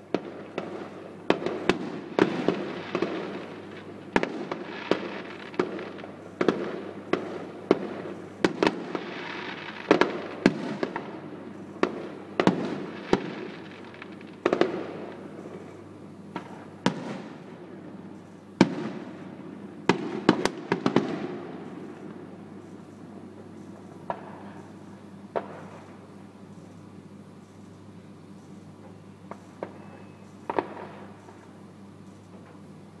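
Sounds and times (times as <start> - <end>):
fireworks bangs with rumble: 0.0 - 17.6, 18.2 - 22.6, 23.8 - 24.6, 25.3 - 25.9, 30.5 - 31.1.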